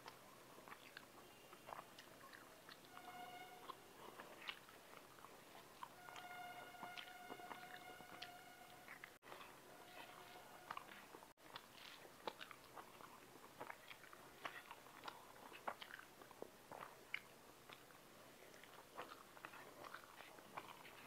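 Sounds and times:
person chewing: 0.0 - 21.0.

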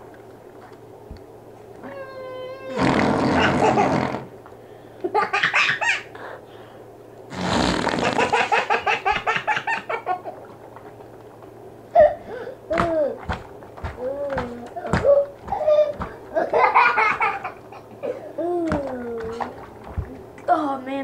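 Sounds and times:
child laughing: 2.0 - 4.1, 5.0 - 6.2, 8.0 - 10.4, 14.0 - 19.6.

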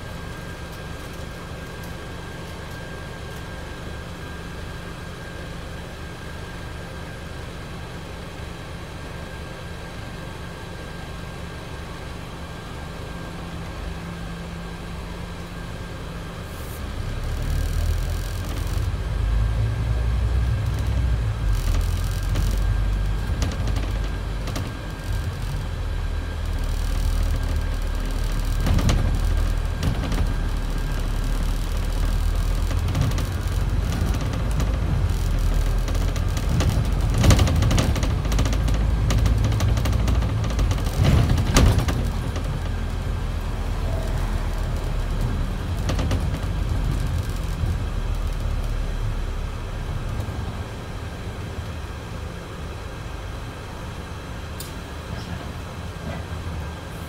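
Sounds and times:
bus engine drone: 0.0 - 57.0
road noise: 12.2 - 57.0
bus body rattles: 17.1 - 51.4.

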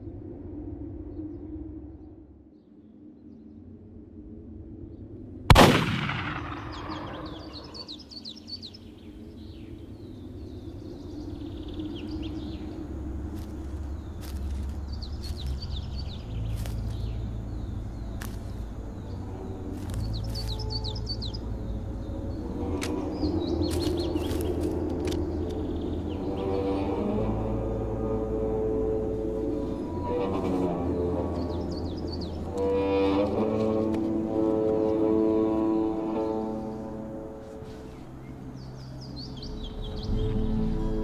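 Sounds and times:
steady low drone: 0.0 - 41.0
birds chirping: 4.9 - 41.0
rifle shot with echo: 5.5 - 7.9.

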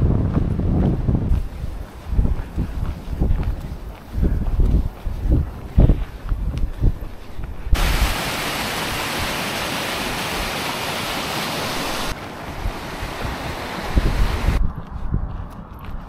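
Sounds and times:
wind buffeting microphone: 0.0 - 16.0
river water rushing over weir: 7.8 - 14.6.

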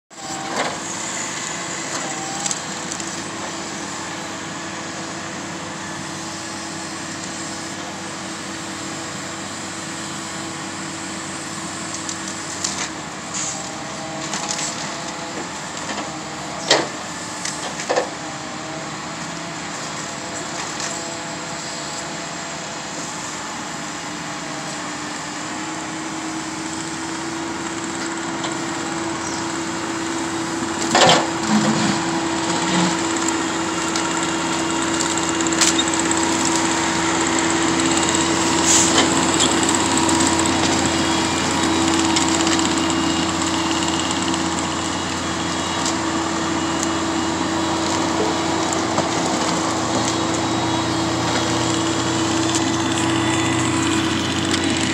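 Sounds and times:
diesel truck engine running: 0.1 - 54.9.

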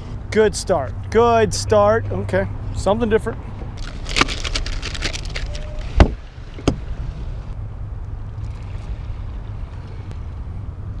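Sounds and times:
plastic packets rustling: 3.8 - 5.7.

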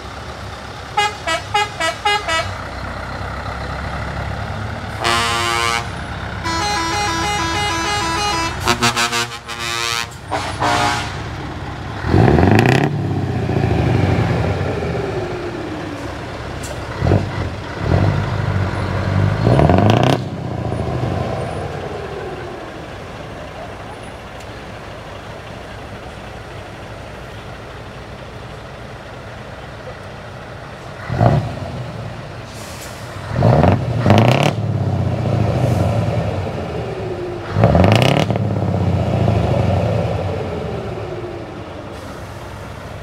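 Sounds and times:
truck engines running: 0.0 - 43.0
truck horn tunes and blasts: 0.9 - 2.6, 4.9 - 11.4
engines revving up: 11.9 - 22.6, 31.0 - 42.1.

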